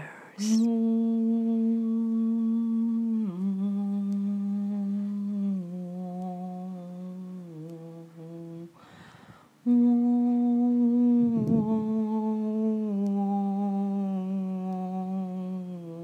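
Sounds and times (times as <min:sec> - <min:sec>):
person humming: 0:00.0 - 0:08.9, 0:09.6 - 0:16.0
breath: 0:08.8 - 0:09.6.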